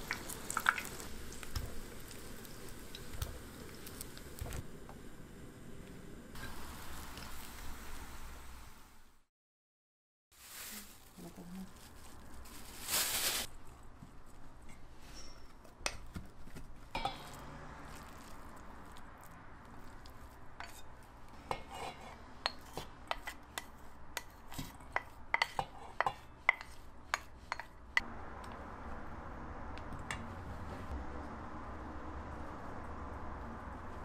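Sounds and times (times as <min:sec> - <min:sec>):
spatula scraping in metal bowl: 0:19.8 - 0:27.8.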